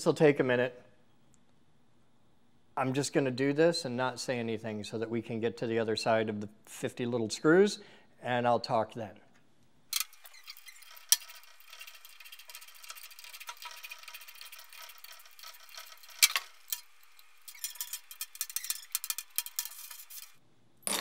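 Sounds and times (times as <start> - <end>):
screwdriver scraping and ticking: 9.9 - 20.4.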